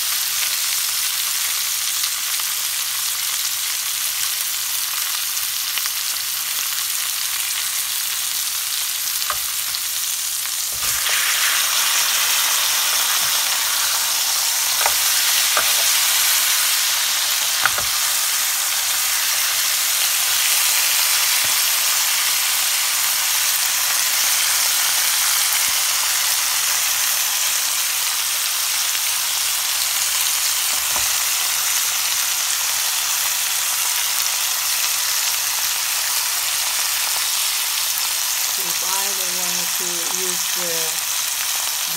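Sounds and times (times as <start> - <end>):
pork chops sizzling in grill pan: 0.0 - 41.9
tongs clicking: 9.2 - 9.8, 14.6 - 16.6, 17.5 - 18.2.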